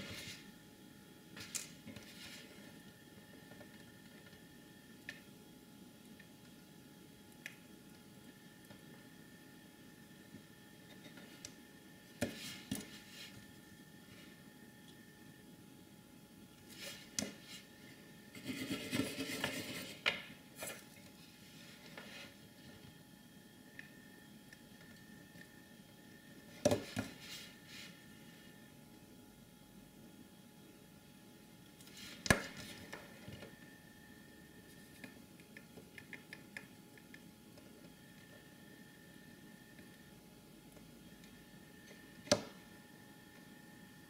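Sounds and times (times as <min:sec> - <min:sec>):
scraping and rubbing: 0:18.3 - 0:20.0.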